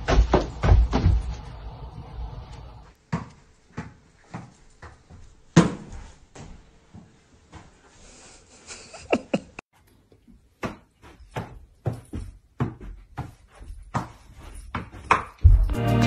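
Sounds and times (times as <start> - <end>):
footfalls on floor: 0.0 - 7.9, 10.6 - 15.8.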